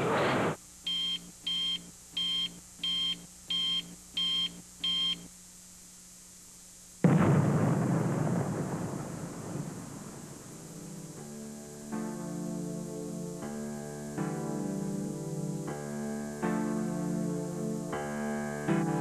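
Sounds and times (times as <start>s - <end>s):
short electronic beeps: 0.9s - 5.3s
loud explosion blast: 7.0s - 10.6s.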